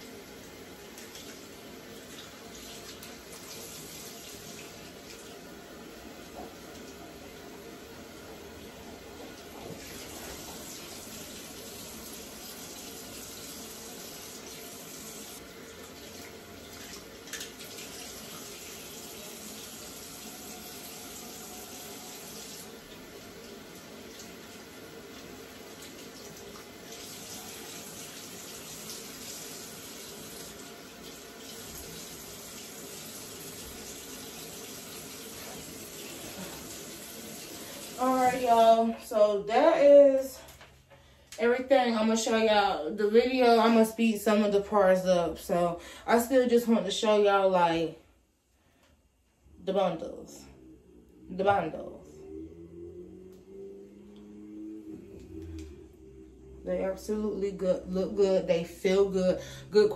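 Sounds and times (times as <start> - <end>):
tap water running into sink: 0.0 - 5.5, 6.1 - 38.6.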